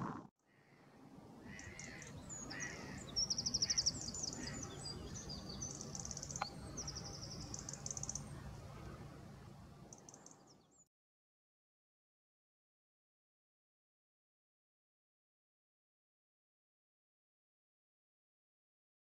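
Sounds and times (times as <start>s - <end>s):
goldfinch singing: 1.4s - 10.8s.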